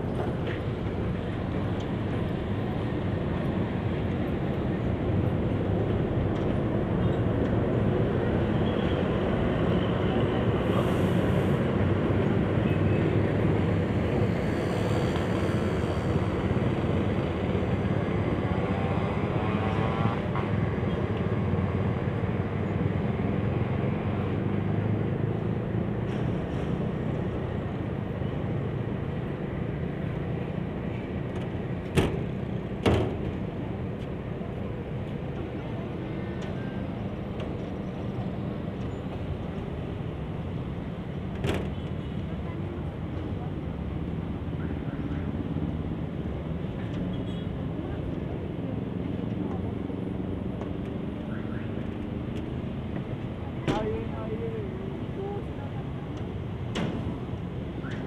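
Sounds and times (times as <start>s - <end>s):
wheel and rail noise: 0.0s - 19.5s
locomotive engine rumble: 0.0s - 58.0s.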